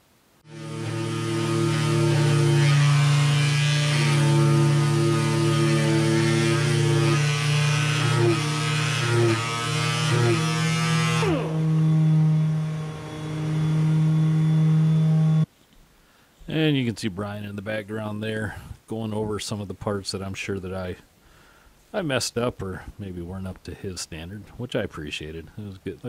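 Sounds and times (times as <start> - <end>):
steady hum: 0.0 - 15.5
pneumatic sander sanding wood: 0.4 - 15.5.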